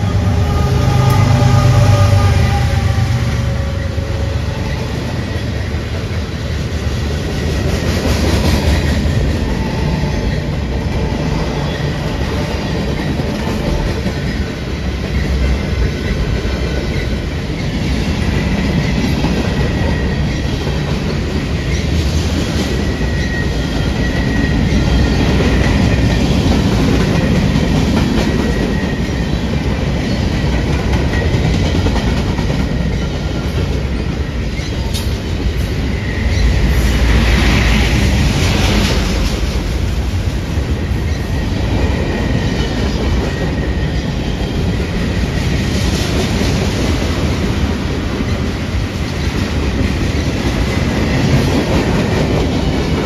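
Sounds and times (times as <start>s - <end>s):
freight cars rumbling on rails: 0.0s - 53.0s
faint high wheel squeal: 22.9s - 25.8s.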